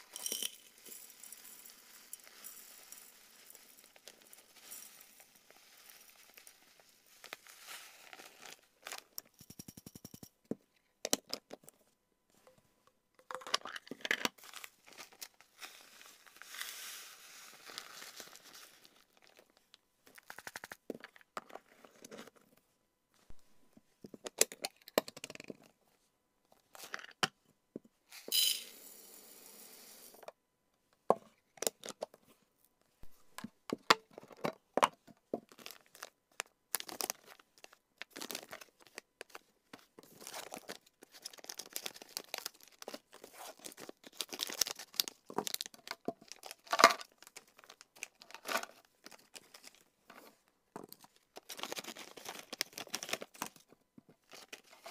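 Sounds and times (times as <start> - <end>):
plastic packaging crinkling: 0.0 - 9.2, 35.5 - 39.4, 40.0 - 49.8, 50.9 - 53.6, 54.2 - 54.9.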